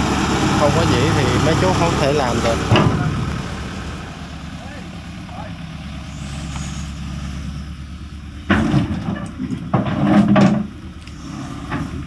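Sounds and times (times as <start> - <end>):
excavator diesel engine running: 0.0 - 12.0
metal clanking and scraping: 2.4 - 3.3, 8.4 - 12.0.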